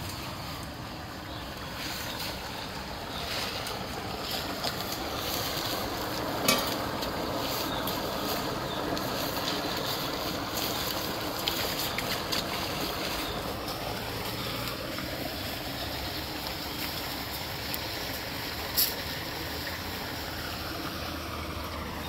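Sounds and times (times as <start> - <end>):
floodwater rushing through a pipe: 0.0 - 22.0.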